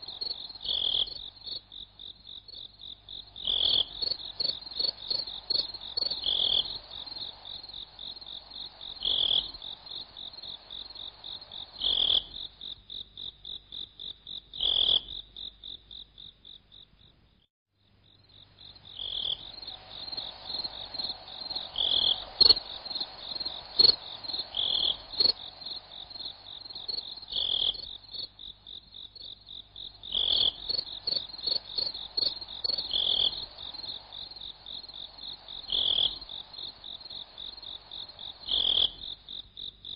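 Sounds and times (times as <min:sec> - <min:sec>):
high-pitched insect chirping: 0:18.6 - 0:39.4.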